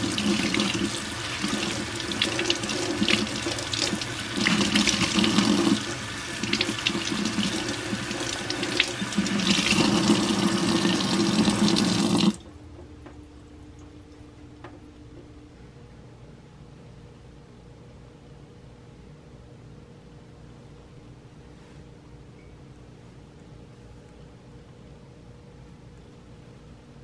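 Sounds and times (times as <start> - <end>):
tap water splashing in sink: 0.0 - 13.2.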